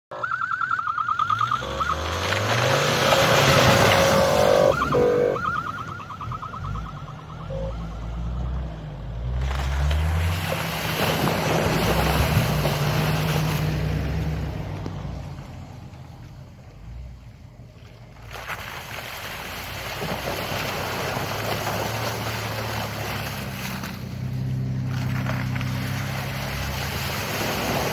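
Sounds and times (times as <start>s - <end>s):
water splashing: 0.3s - 8.2s, 9.2s - 14.8s, 17.8s - 27.9s
engine revving: 1.2s - 16.0s.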